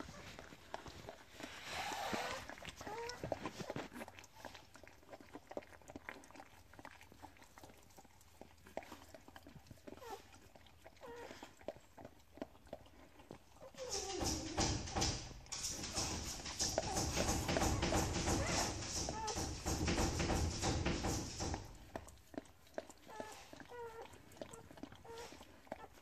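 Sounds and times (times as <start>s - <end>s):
dog licking puppy: 0.0s - 14.5s, 21.6s - 26.0s
puppy squeaks and cry: 2.3s - 3.3s, 23.1s - 24.1s.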